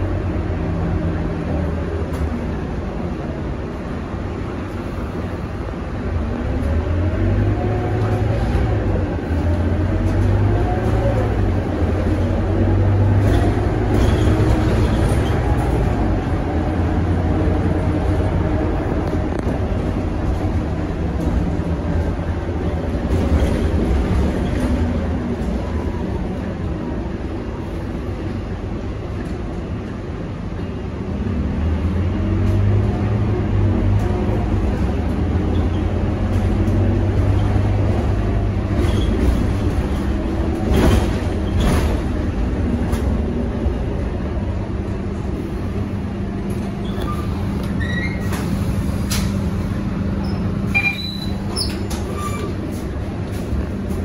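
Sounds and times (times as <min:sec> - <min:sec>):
bus engine drone: 0:00.0 - 0:54.0
faint high squeaks: 0:50.3 - 0:52.6.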